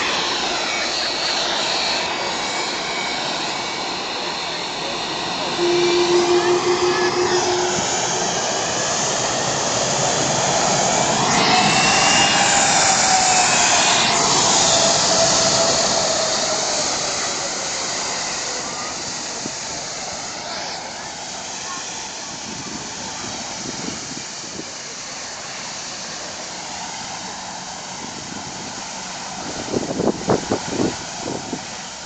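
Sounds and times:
jet engines taxiing: 0:00.0 - 0:32.0
whine falling in pitch: 0:05.4 - 0:08.8
brief steady hum: 0:05.6 - 0:08.4.

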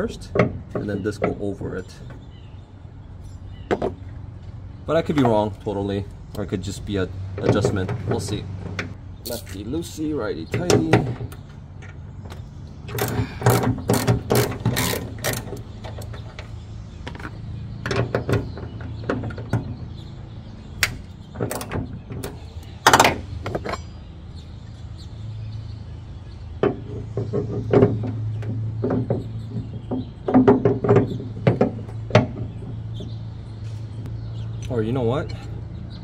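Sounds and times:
ratchet wrench clicking: 0:12.9 - 0:15.6.

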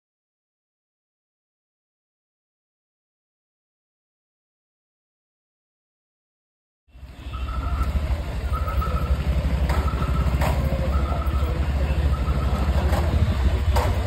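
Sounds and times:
motorcycle engine rumbling: 0:06.9 - 0:14.0.

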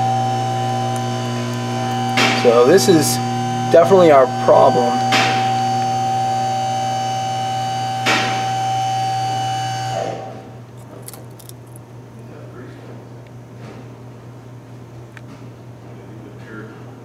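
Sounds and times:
electrical hum: 0:00.0 - 0:17.0.

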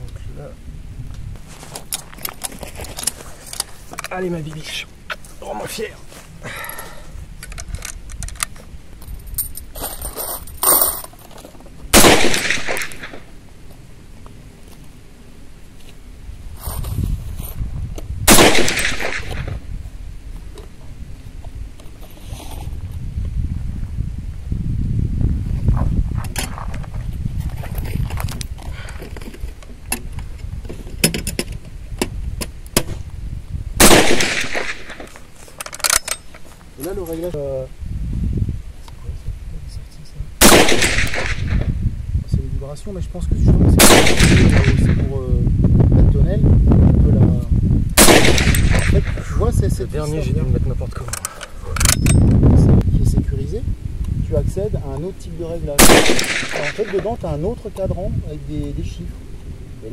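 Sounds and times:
rifle shot: 0:11.9 - 0:13.3, 0:18.2 - 0:19.6, 0:33.8 - 0:35.2, 0:40.4 - 0:41.7, 0:43.8 - 0:45.1, 0:48.0 - 0:49.3, 0:55.8 - 0:57.2.

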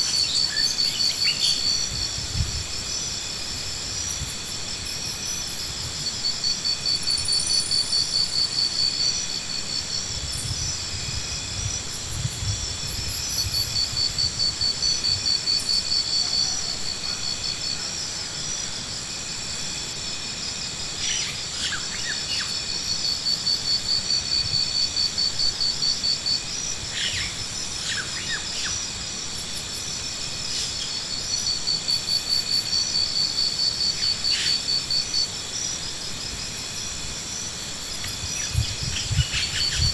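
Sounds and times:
insect chorus: 0:00.0 - 0:39.9
pulsing insect trill: 0:00.0 - 0:39.9.

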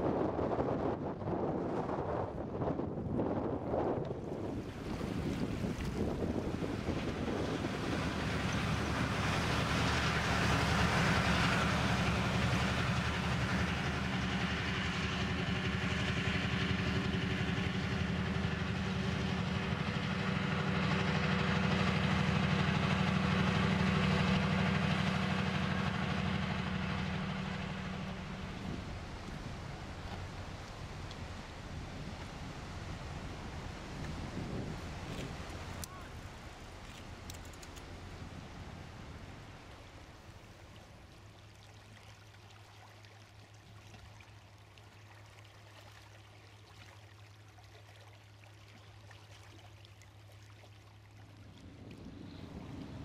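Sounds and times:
diesel engine throbbing: 0:07.1 - 0:33.7, 0:51.6 - 0:53.0.

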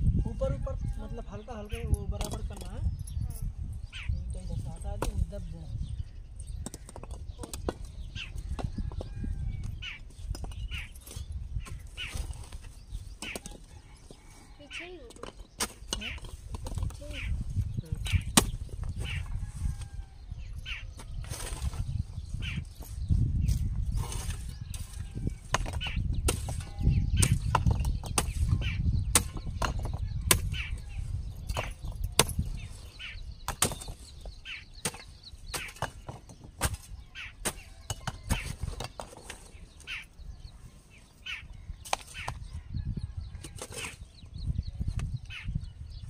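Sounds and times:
bird chirps: 0:00.8 - 0:46.0
digging tool striking earth: 0:06.5 - 0:13.8, 0:15.0 - 0:17.4, 0:18.0 - 0:19.3, 0:20.9 - 0:40.0, 0:41.8 - 0:42.5, 0:43.4 - 0:44.1.

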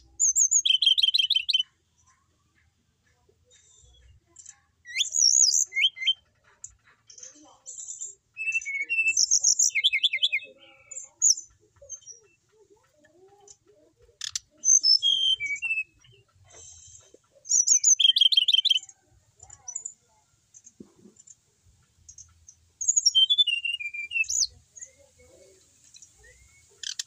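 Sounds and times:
bird trilling and whistling: 0:00.2 - 0:01.6, 0:04.8 - 0:06.2, 0:08.4 - 0:10.6, 0:14.2 - 0:16.2, 0:17.4 - 0:18.9, 0:22.8 - 0:24.9, 0:26.0 - 0:27.0.

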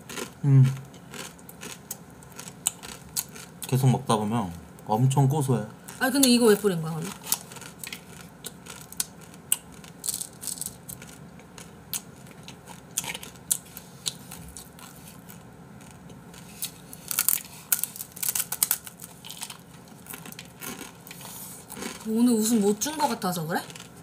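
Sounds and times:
crunching raw noodles: 0:07.1 - 0:22.1
dry noodles snapping: 0:16.6 - 0:20.5.

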